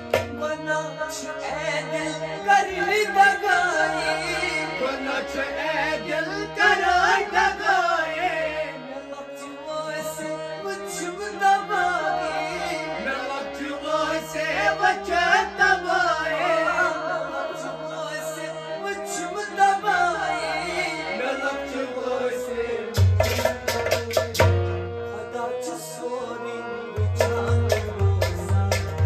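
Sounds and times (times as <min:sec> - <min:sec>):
held keyboard notes: 0:00.0 - 0:29.0
man singing: 0:00.0 - 0:29.0
drum beat: 0:23.0 - 0:24.6, 0:27.2 - 0:29.0.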